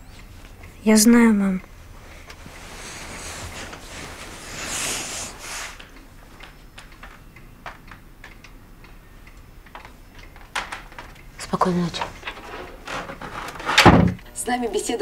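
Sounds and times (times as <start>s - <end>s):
rustling of bedclothes: 0.2s - 8.0s.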